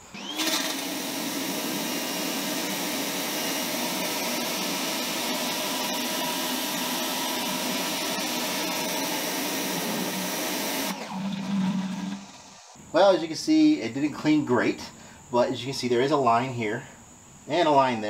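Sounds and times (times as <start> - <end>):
pressure washer motor hum: 0.0 - 12.8.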